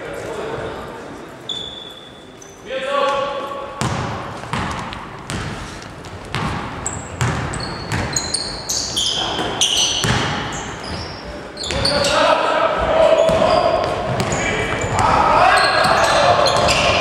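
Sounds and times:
sneakers squeaking: 0:01.4 - 0:02.7, 0:03.8 - 0:17.0
basketball bouncing on wood floor: 0:03.8 - 0:08.3, 0:10.0 - 0:10.5, 0:13.3 - 0:15.0.

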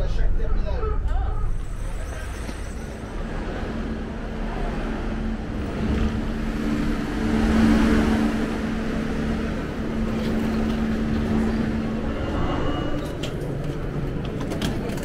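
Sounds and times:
background rush: 0:00.0 - 0:15.0
low mechanical hum: 0:03.2 - 0:15.0.

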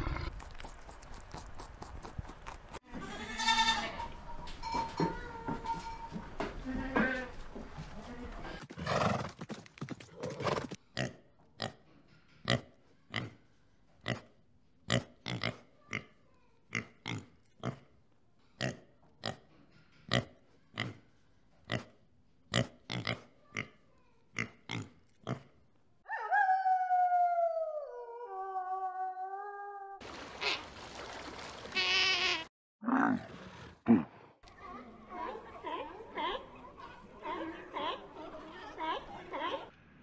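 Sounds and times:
wolf howling: 0:26.1 - 0:30.0
warthog grunting: 0:32.8 - 0:34.4.

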